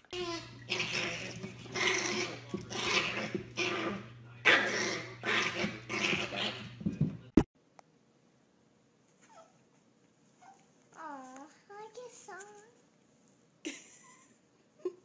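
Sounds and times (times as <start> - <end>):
steady low hum: 0.0 - 9.0
puppy yapping: 0.1 - 6.7.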